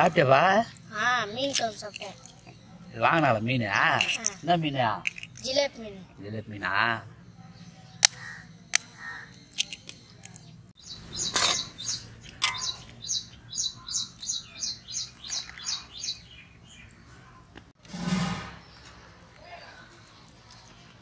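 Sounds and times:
bird chirping high notes: 10.8s - 16.9s.

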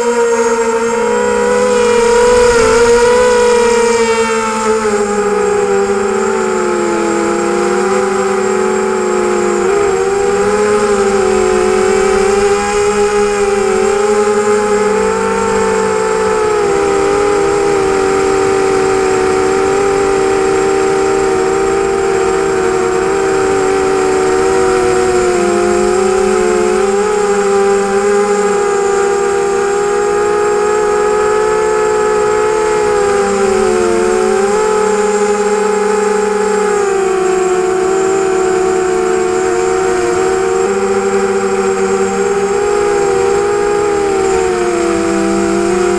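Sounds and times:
quadcopter motors whining: 0.0s - 45.9s.

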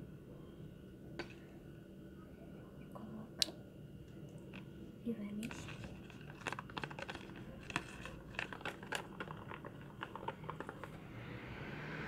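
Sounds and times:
plastic crinkling and clicks: 5.4s - 11.0s.

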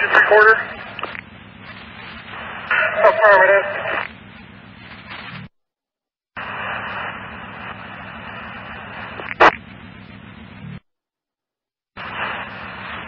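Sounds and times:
radio click: 0.0s - 1.3s, 9.1s - 9.6s
low background rumble: 0.0s - 5.5s, 6.4s - 10.8s
radio static hiss: 0.0s - 5.5s, 6.4s - 10.8s, 12.0s - 13.0s.

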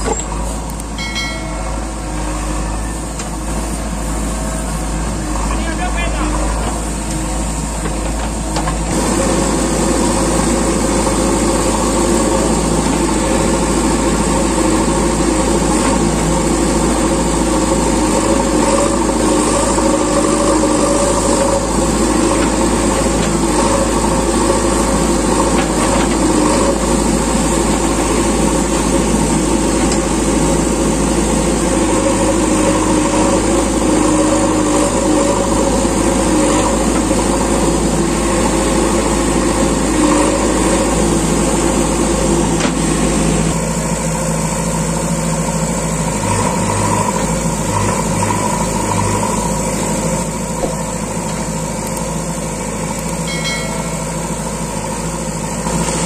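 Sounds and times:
diesel engine droning: 0.0s - 56.0s.

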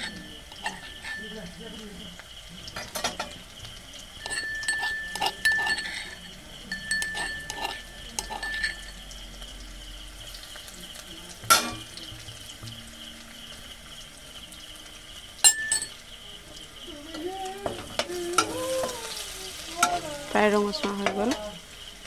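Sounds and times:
spatula scraping metal pan: 0.0s - 1.6s, 4.2s - 9.0s
onions frying in oil: 0.0s - 22.0s
thin high steady tone: 0.0s - 22.0s.

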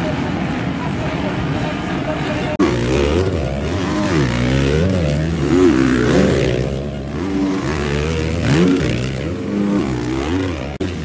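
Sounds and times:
motocross bikes revving: 2.4s - 11.0s.

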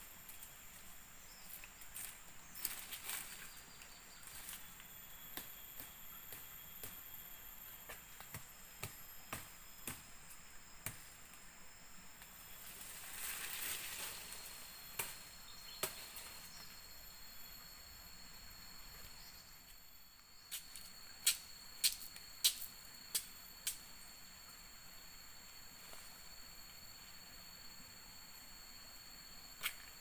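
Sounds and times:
rustle of leaves: 0.0s - 5.1s, 12.2s - 16.9s
insects droning: 0.0s - 30.0s.

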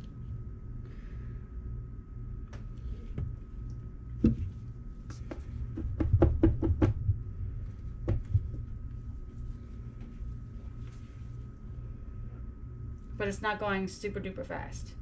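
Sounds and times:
soap mold knocking on wooden tray: 5.7s - 7.0s.

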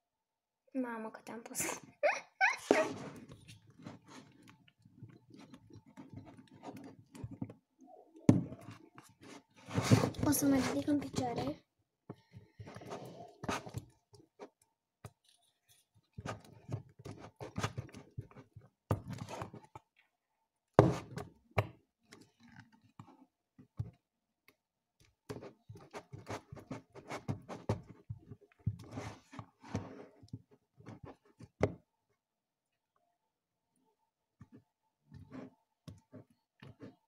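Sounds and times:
spatula scraping plastic tub: 2.6s - 7.5s, 8.3s - 11.5s, 12.6s - 13.9s.

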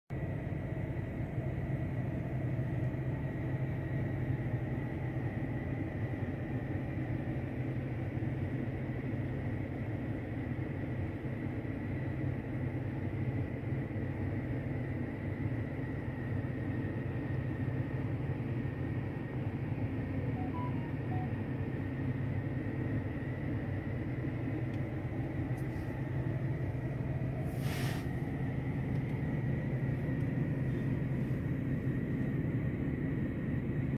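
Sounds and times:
low hum in car cabin: 0.1s - 33.9s
faint high whine: 13.8s - 33.9s.

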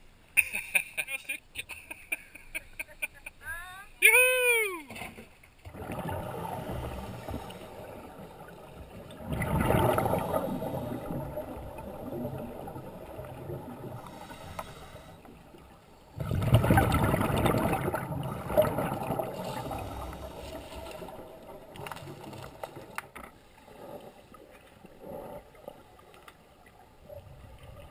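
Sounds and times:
quiet underwater bubbling: 4.9s - 27.9s
rush of exhaled bubbles: 5.6s - 23.0s
diver breathing through regulator: 14.0s - 15.4s, 19.4s - 20.9s.

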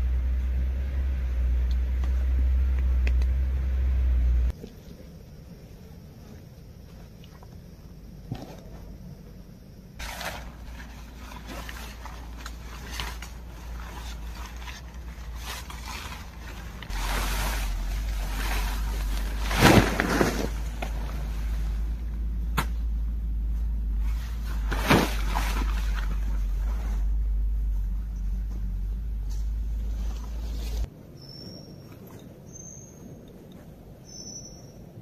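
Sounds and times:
steady low rumble: 0.0s - 31.2s
nylon tent fabric rustling: 10.0s - 22.2s, 23.4s - 30.9s.

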